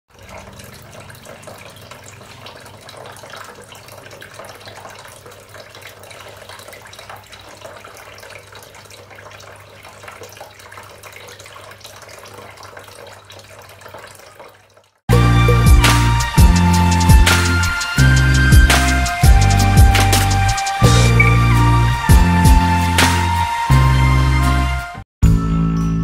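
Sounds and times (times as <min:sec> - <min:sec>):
fountain water trickling into basin: 0:00.1 - 0:15.1.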